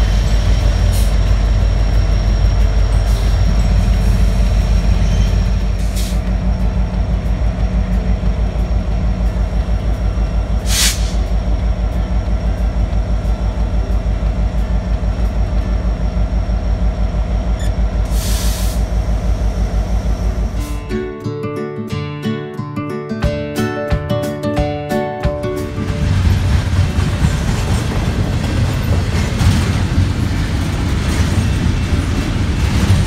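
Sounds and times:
diesel locomotive engines rumbling: 0.0s - 21.2s, 25.4s - 33.0s
air hisses: 10.6s - 11.2s, 18.1s - 18.8s.

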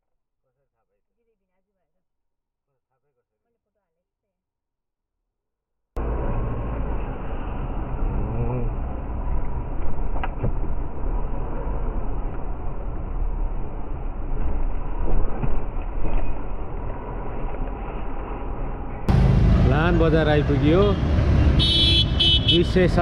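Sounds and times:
road and engine rumble: 6.0s - 23.0s.

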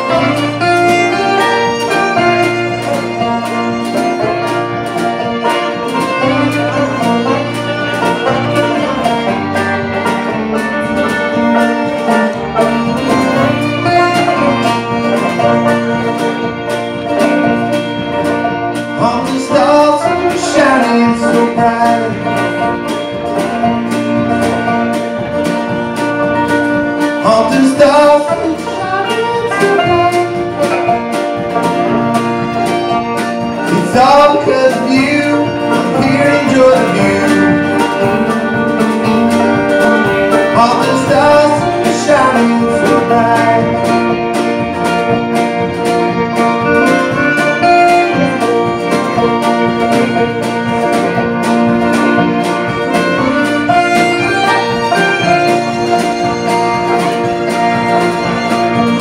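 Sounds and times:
acoustic guitars: 0.0s - 59.0s
banjo: 0.0s - 59.0s
drums: 0.0s - 59.0s
fiddle: 0.0s - 59.0s
upright bass: 0.0s - 59.0s.

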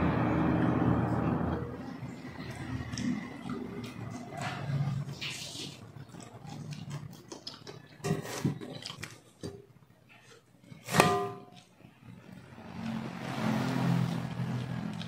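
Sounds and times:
low rumbling noise: 0.0s - 5.2s
man eating by hand: 1.6s - 10.9s, 11.5s - 15.0s.

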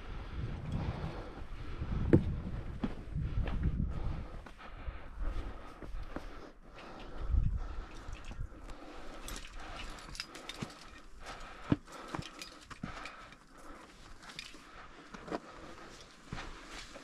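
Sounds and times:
climbing gear clicking: 6.7s - 16.3s.

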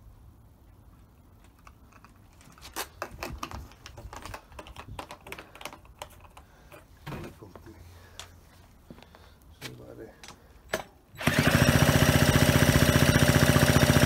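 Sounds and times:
plastic jug clicks and rattles: 3.0s - 6.8s.

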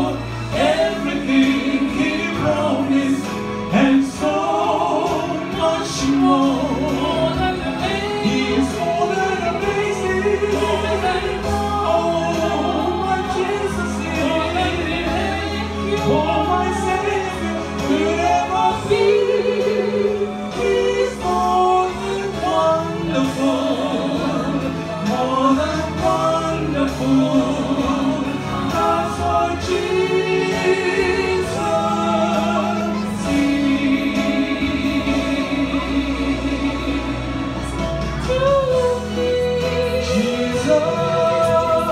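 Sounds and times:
man and woman singing duet: 0.0s - 41.9s.

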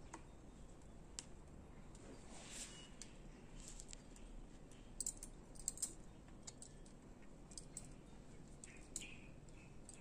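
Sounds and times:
tool keys clinking: 4.8s - 8.0s.

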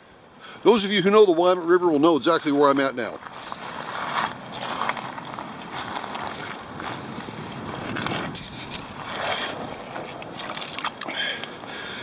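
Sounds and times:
footsteps crunching on gravel: 2.4s - 11.6s.

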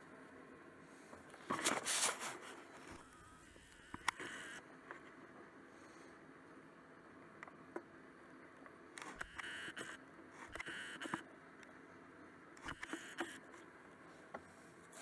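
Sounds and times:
camera handling rustling: 1.4s - 3.0s.

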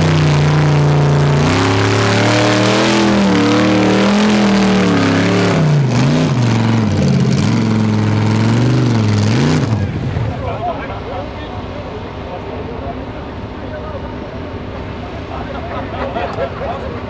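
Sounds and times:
buggy engine revving hard: 0.0s - 10.6s.

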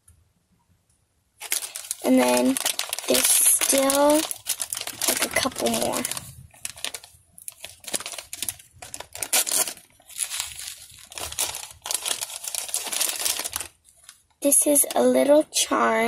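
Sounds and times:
plastic packet crinkling and tearing: 1.4s - 15.2s.

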